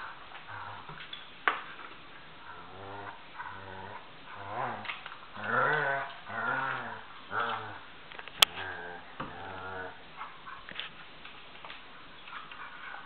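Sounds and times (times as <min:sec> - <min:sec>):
dogs play-growling: 0:00.0 - 0:01.2, 0:01.8 - 0:11.0.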